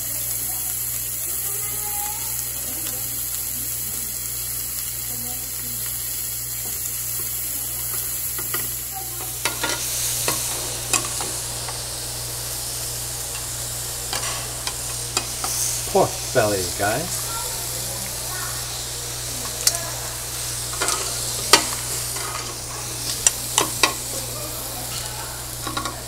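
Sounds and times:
food sizzling on grill: 0.0 - 26.0
tongs and chopsticks clinking: 6.6 - 12.2, 12.8 - 16.0, 18.8 - 26.0.

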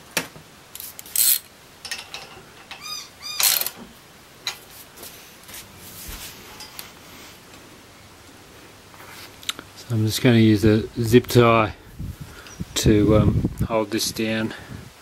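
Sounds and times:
clicks knocks and scraping on metal frame: 1.8 - 2.8.

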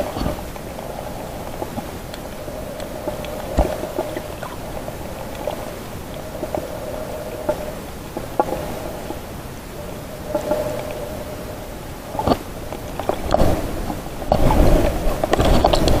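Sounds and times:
sharp underwater clicks and knocks: 0.0 - 6.7, 12.2 - 16.0
low underwater drone: 0.0 - 16.0.

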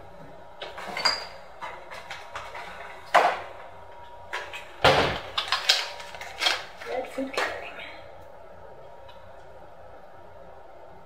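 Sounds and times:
kitchen knocks and clunks: 0.6 - 3.7, 4.4 - 6.6.

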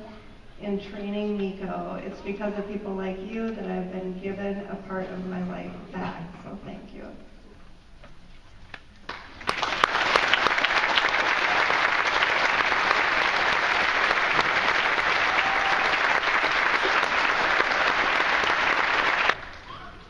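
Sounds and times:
audience applauding: 9.1 - 20.0.

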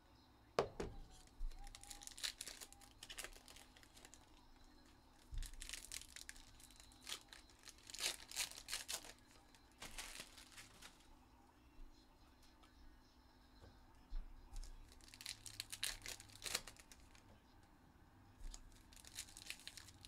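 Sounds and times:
foil wrappers tearing and crinkling: 1.0 - 11.1, 14.6 - 17.2, 18.4 - 20.0.

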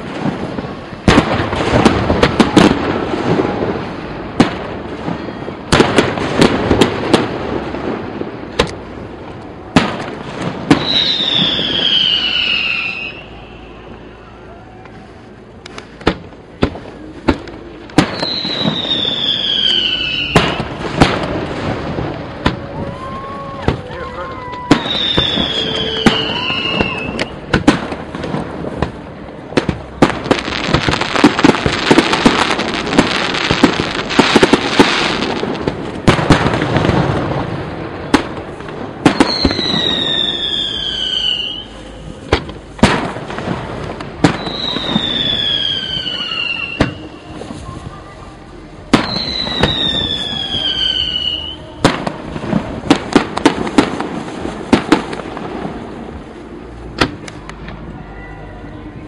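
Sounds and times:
firework bangs and crackle: 0.0 - 59.0
whistling firework shells: 10.6 - 14.2, 17.9 - 21.3, 23.7 - 27.6, 39.0 - 41.8, 44.2 - 47.4, 48.9 - 51.7.

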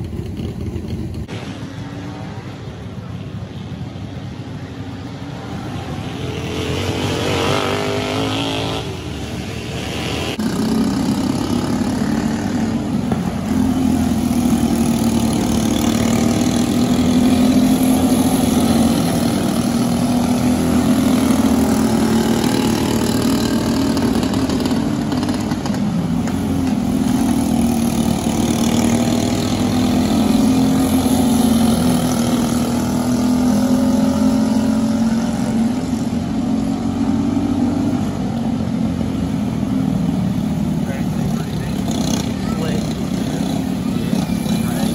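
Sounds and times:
racing kart engines: 0.0 - 44.9.

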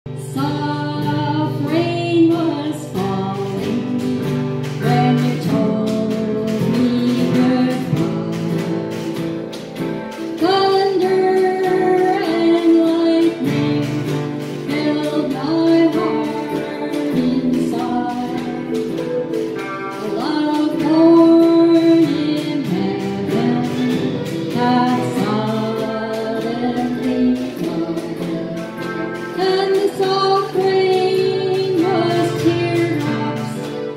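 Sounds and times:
woman singing: 0.0 - 33.9
acoustic guitar strumming: 0.1 - 33.9.

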